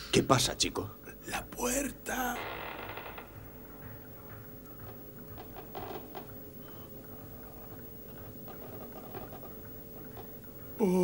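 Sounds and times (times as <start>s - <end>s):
faint steady hum: 0.0s - 11.0s
door creaking: 2.1s - 10.3s.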